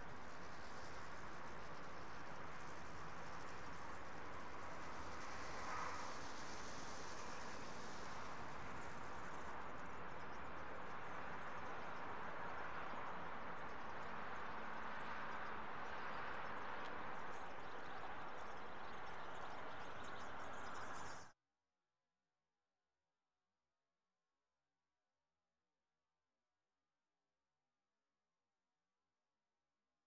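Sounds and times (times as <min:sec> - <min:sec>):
steady rushing hiss: 0:00.0 - 0:14.9
finches twittering: 0:06.2 - 0:21.3.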